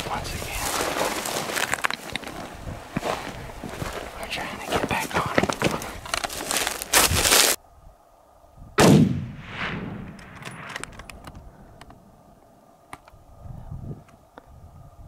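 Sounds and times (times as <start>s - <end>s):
rifle shot with echo: 8.8s - 11.2s
faint clicks: 10.1s - 12.0s, 12.9s - 13.2s.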